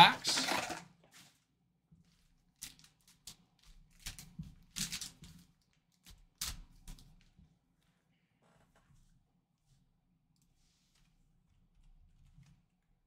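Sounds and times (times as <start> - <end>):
card wrappers rustling: 0.0 - 0.8.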